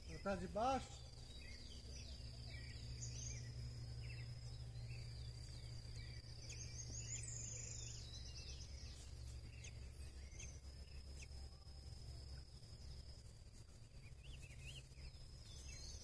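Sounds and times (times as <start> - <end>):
birds chirping: 0.0 - 16.0.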